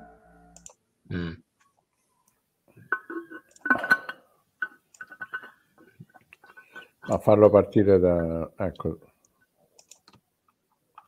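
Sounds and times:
low vocal grunt: 0:01.1 - 0:01.4
computer mouse clicks: 0:09.8 - 0:10.2.

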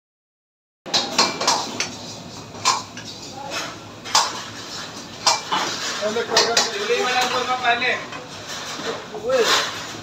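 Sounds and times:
metal ladle clanking against wok: 0:05.2 - 0:07.4.

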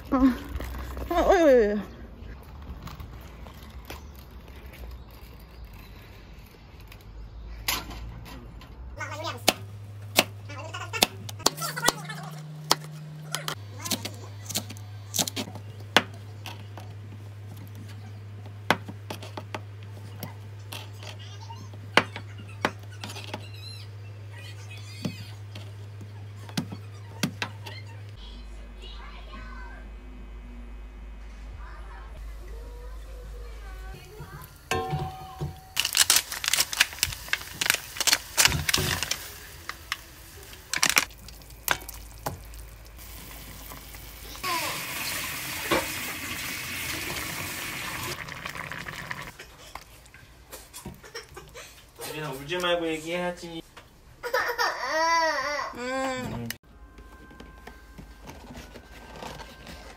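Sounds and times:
low steady hum: 0:00.0 - 0:59.9
utensils clinking on saucepan: 0:34.7 - 0:36.0.

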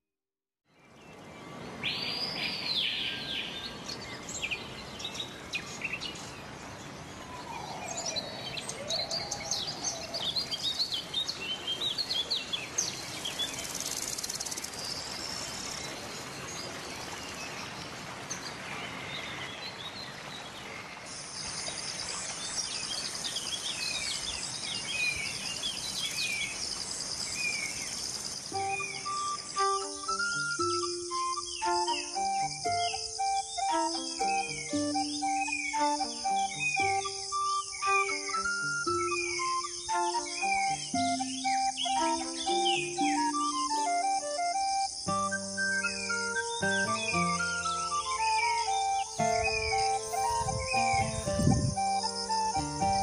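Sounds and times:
birds chirping and whistling: 0:06.9 - 0:14.6, 0:28.5 - 0:53.0.

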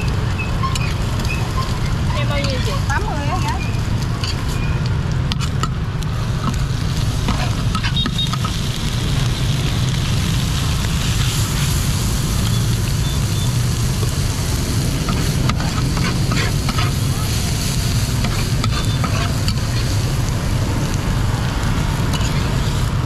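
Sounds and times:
food sizzling in oil: 0:00.0 - 0:23.0
metal spatula scraping pan: 0:07.3 - 0:08.6, 0:15.0 - 0:20.0, 0:22.1 - 0:22.8.

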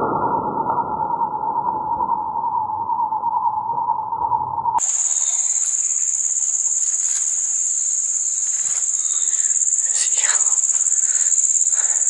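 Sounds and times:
high-pitched insect drone: 0:04.8 - 0:12.0.

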